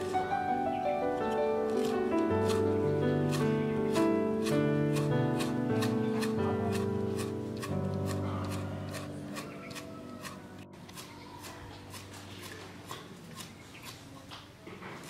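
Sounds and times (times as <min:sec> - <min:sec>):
background music: 0:00.0 - 0:11.0
cleaver chopping on wooden board: 0:01.8 - 0:02.6, 0:03.3 - 0:10.4.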